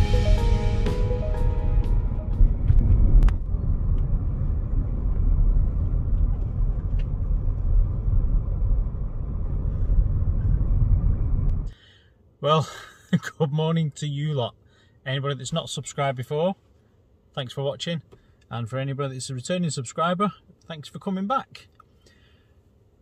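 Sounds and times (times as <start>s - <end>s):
car engine and tyre rumble: 1.5s - 11.7s.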